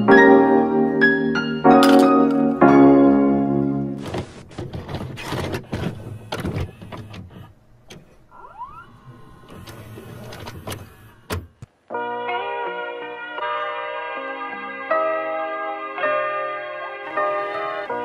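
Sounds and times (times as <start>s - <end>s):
tape mechanism clicks and clunks: 4.0s - 8.4s, 9.2s - 11.7s.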